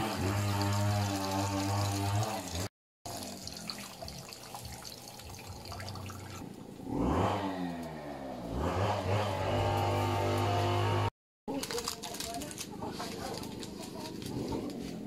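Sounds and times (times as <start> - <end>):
water pouring and splashing: 0.0 - 6.6
droning engine: 6.8 - 11.1.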